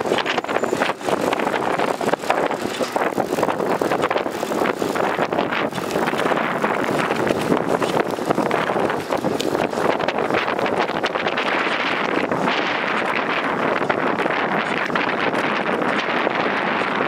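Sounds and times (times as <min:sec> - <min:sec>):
wind rushing across microphone: 0:00.0 - 0:17.0.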